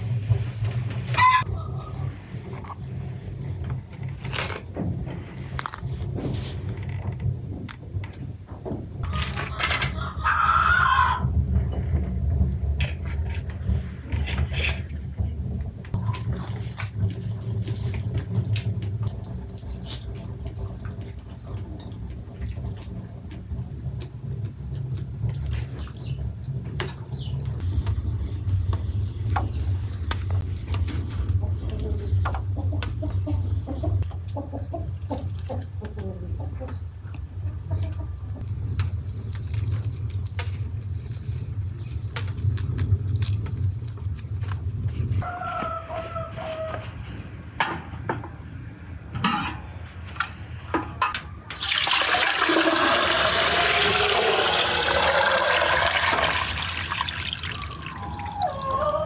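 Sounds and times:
chickens clucking: 0:09.0 - 0:11.3, 0:28.7 - 0:38.8, 0:45.2 - 0:47.4, 0:57.7 - 0:59.0
rooster crowing: 0:09.0 - 0:11.3, 0:45.2 - 0:46.9, 0:57.6 - 0:59.0
water running: 0:51.6 - 0:58.2.

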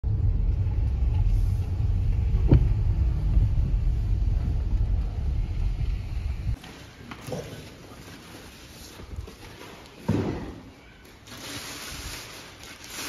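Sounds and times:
car rumble from inside cabin: 0:00.0 - 0:06.6
sharp thump: 0:02.4 - 0:03.0.

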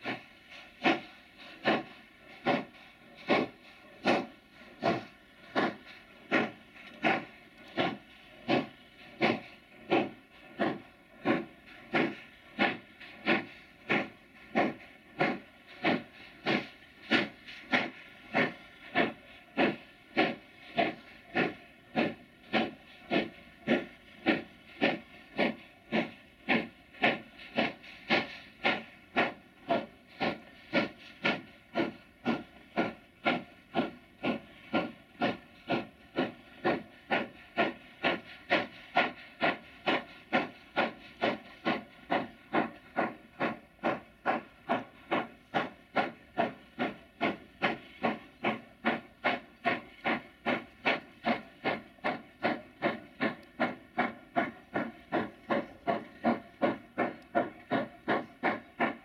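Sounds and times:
steam locomotive chuffing: 0:00.0 - 0:59.0.

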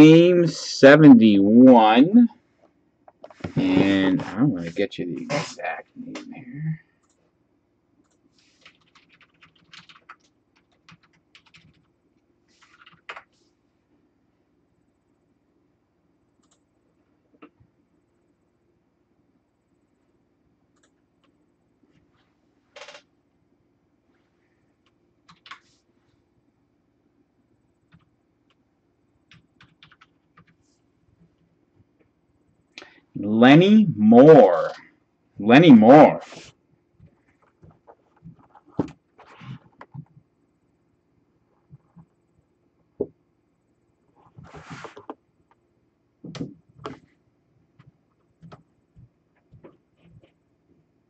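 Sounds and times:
computer keyboard typing: 0:08.0 - 0:12.0, 0:12.6 - 0:13.3, 0:16.4 - 0:16.7, 0:22.8 - 0:23.1, 0:24.8 - 0:25.7, 0:27.8 - 0:28.6, 0:29.2 - 0:30.6.

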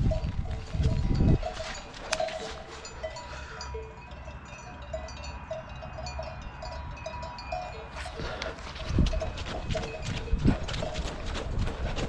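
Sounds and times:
cowbells clanking: 0:00.0 - 0:12.0.

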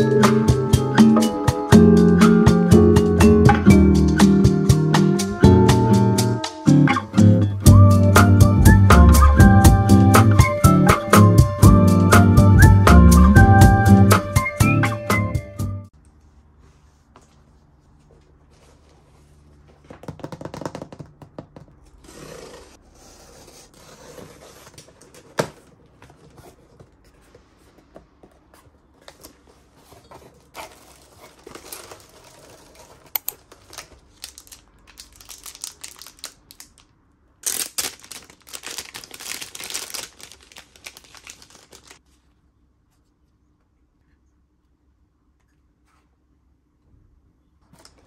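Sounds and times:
paper and plastic crinkling: 0:24.0 - 0:42.3
packing tape tearing: 0:30.4 - 0:42.0.

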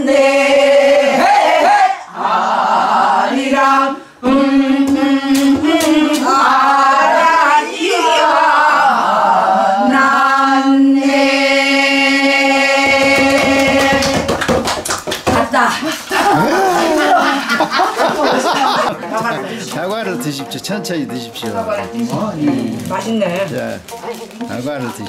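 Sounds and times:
group singing folk style: 0:00.0 - 0:25.0.

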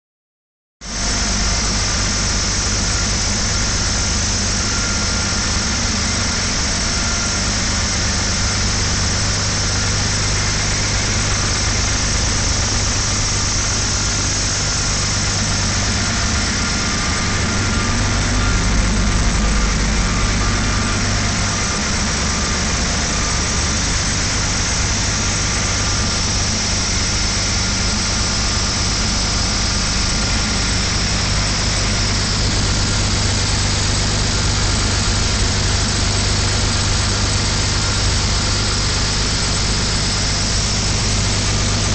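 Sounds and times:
gas engine running steadily: 0:00.8 - 0:41.9.

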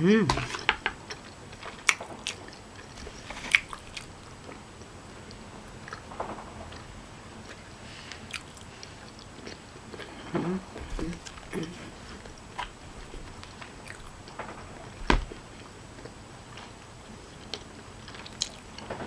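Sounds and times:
person humming: 0:00.0 - 0:00.7, 0:10.2 - 0:12.0
person chewing food: 0:00.4 - 0:06.1, 0:06.7 - 0:18.9
wet mouth clicks and lip smacks: 0:03.5 - 0:04.1.

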